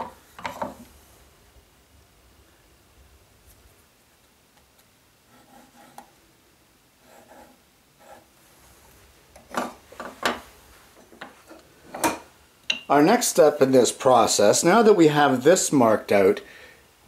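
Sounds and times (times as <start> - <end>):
pencil scratching on wood: 5.3 - 6.1, 7.0 - 8.3.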